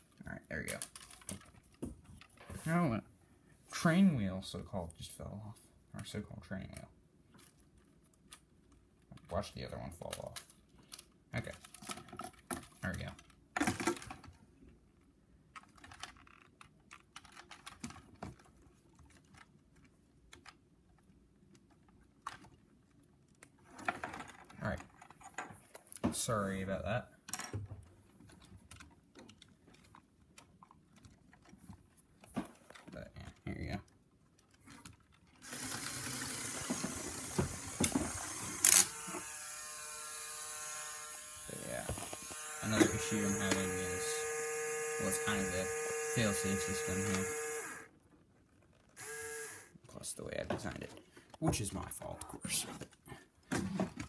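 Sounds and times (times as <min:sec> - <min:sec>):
plastic parts clicking and rattling: 0:00.0 - 0:02.6, 0:06.0 - 0:26.3, 0:27.2 - 0:39.0, 0:46.3 - 0:49.0, 0:50.4 - 0:54.0
electric motor whirring: 0:35.4 - 0:47.9, 0:49.0 - 0:49.7.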